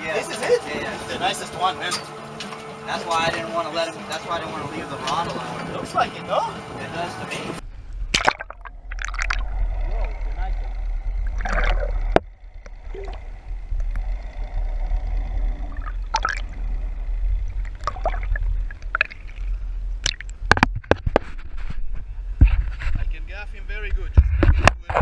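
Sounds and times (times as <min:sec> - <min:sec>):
low steady rumble: 0:06.6 - 0:25.0
underwater gurgling and sloshing: 0:07.6 - 0:23.0.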